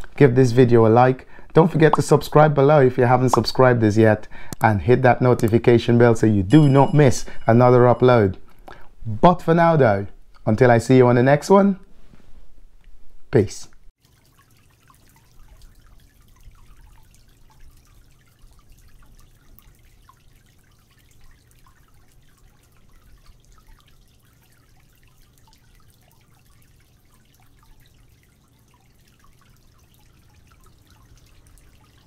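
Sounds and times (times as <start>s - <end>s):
drip-like ticks: 14.0s - 32.0s
water lapping and splashing: 14.0s - 32.0s.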